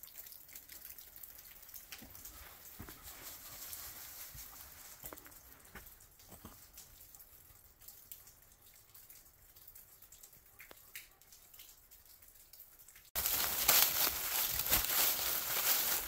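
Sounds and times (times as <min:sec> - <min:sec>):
water dripping: 0:00.0 - 0:16.0
crunching dry leaves underfoot: 0:02.8 - 0:05.3, 0:13.2 - 0:16.0.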